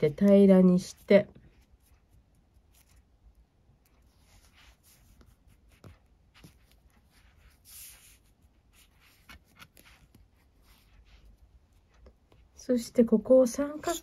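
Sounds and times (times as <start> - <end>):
cord rustling on cloth: 3.8 - 12.6.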